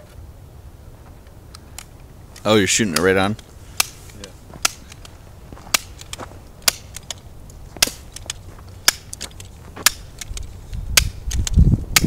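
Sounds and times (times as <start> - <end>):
bb gun shots snapping: 4.6 - 5.1, 5.7 - 7.2, 7.8 - 12.0.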